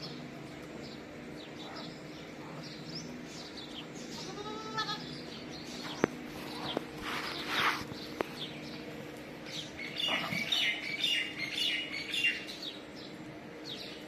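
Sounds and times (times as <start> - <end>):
faint steady hum: 0.0 - 14.0
small birds chirping: 0.0 - 14.0
farm animal bleating: 4.0 - 5.4.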